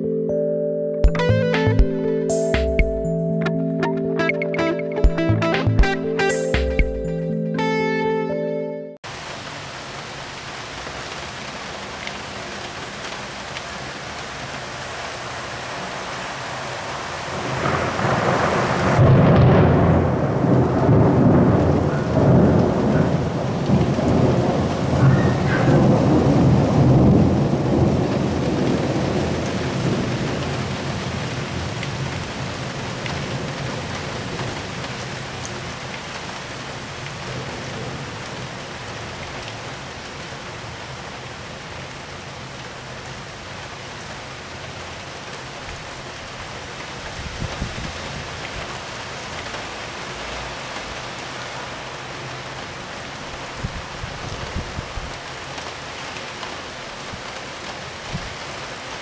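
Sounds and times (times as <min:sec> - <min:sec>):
steady rain: 0:09.0 - 0:59.0
thunder rolling: 0:17.6 - 0:28.3.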